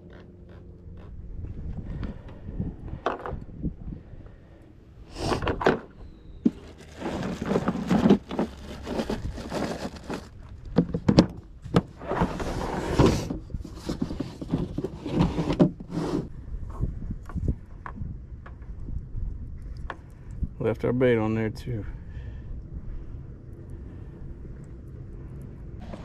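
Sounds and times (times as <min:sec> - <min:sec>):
gear thunking and scraping: 0:05.3 - 0:16.0.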